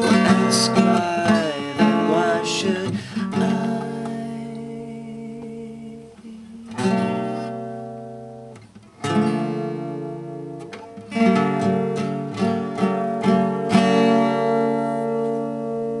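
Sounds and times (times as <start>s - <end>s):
acoustic guitar strumming: 0.0s - 16.0s.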